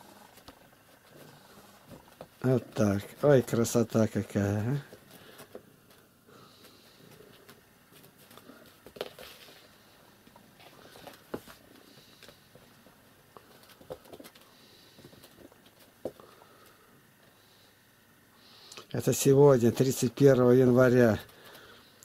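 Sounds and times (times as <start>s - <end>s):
kitten paws scuffing and tapping: 4.8s - 16.2s.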